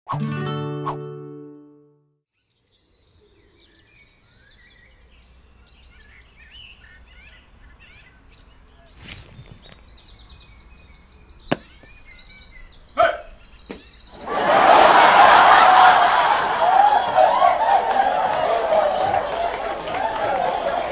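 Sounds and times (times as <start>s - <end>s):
small birds chirping: 2.4s - 14.2s
sharp knocks: 11.5s - 12.0s.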